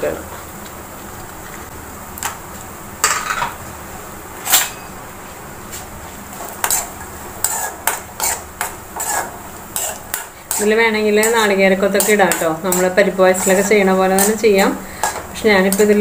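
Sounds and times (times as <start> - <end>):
spoon scraping metal pan: 6.4 - 16.0.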